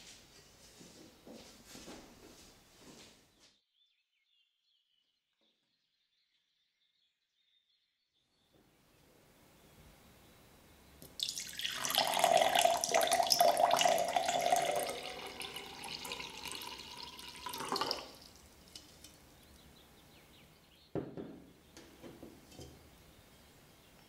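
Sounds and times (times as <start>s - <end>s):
water running into a container: 11.0s - 19.2s.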